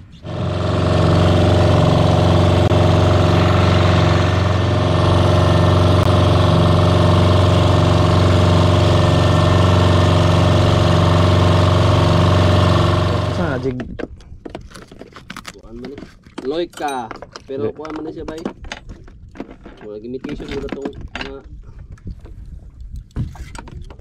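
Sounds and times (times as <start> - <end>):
boat motor droning: 0.0 - 13.8.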